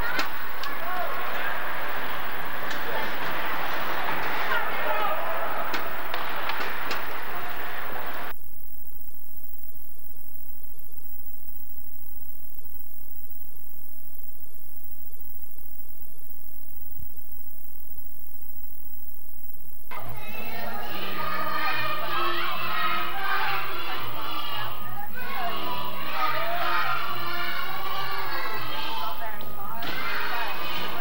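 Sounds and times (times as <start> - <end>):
ice rink noise: 0.0 - 8.3, 19.9 - 31.0
faint steady hum: 0.0 - 31.0
music: 19.9 - 31.0.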